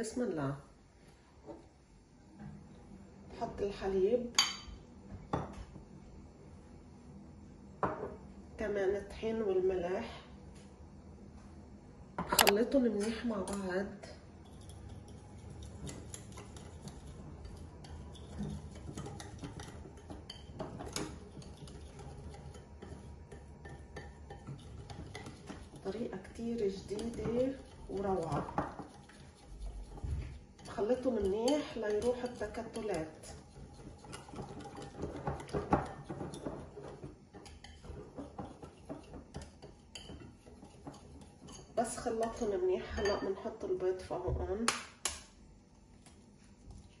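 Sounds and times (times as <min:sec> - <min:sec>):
wire whisk ticking against bowl: 0:14.4 - 0:42.4.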